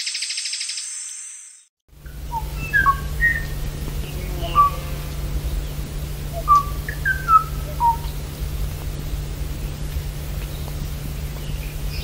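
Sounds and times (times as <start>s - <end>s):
low hum and hiss: 1.9s - 12.0s
bird singing whistled notes: 2.3s - 4.8s, 6.3s - 8.2s.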